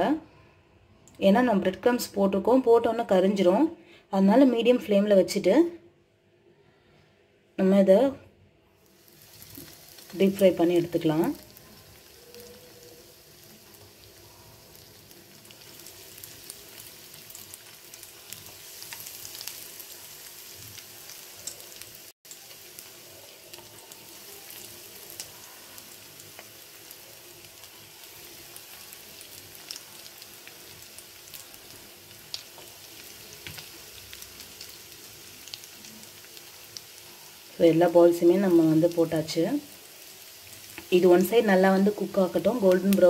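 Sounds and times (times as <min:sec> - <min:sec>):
hot oil sizzling and popping: 0:08.8 - 0:43.0.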